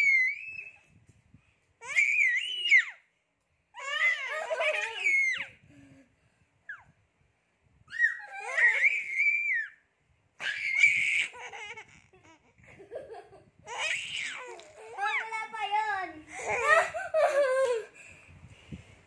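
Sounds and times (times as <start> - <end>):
baby laughing in squeals: 0.0 - 0.8, 1.8 - 3.0, 3.8 - 5.6, 7.9 - 9.8, 10.4 - 12.6, 13.5 - 15.2.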